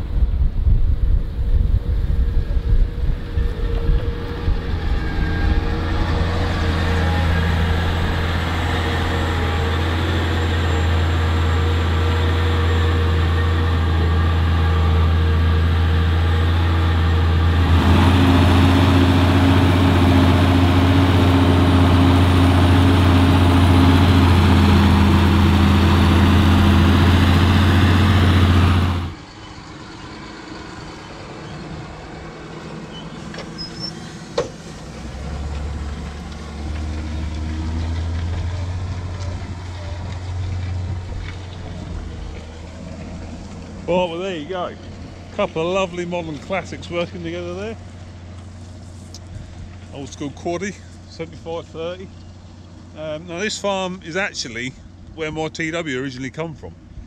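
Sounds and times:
wind noise: 0.0 - 10.1
tractor engine drone: 0.0 - 57.0.

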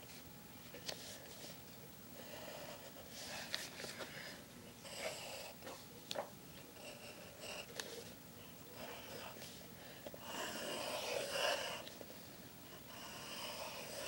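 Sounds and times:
person breathing: 2.1 - 5.6, 8.4 - 14.0
pencil scratching on paper: 4.9 - 5.8, 10.2 - 12.0, 12.8 - 14.0.

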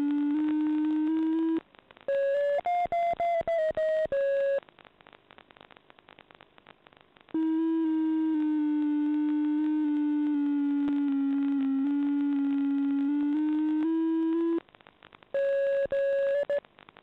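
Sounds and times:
steady buzzy electronic tone: 0.0 - 4.6, 7.4 - 14.6
faint crackle: 0.0 - 17.0.

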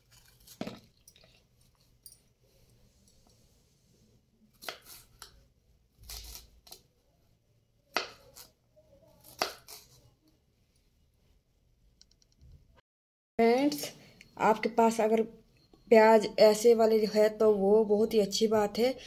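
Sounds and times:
knife cutting on wooden board: 4.5 - 5.4, 6.0 - 6.8.

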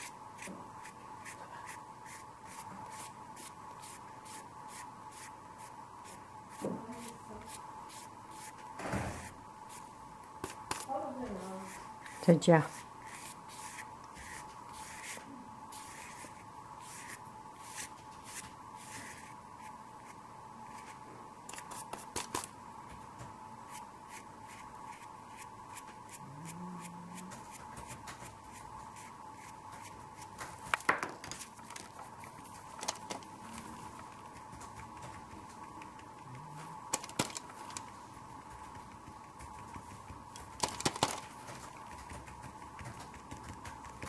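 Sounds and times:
paintbrush scratching on paper: 0.0 - 22.5, 23.7 - 30.6
faint steady whine: 0.0 - 44.0
sharp brush taps: 10.4 - 20.9, 26.8 - 44.0.

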